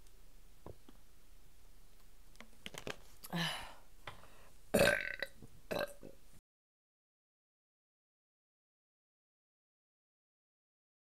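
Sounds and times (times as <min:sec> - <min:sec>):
woman burping: 0:04.8 - 0:06.2.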